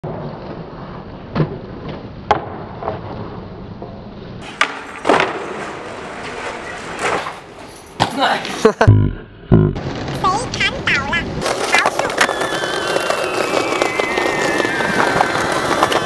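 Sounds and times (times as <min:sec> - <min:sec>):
skateboard wheels rolling on concrete: 0:00.0 - 0:08.6, 0:09.8 - 0:16.0
skateboard clacking: 0:04.4 - 0:07.2, 0:10.2 - 0:16.0.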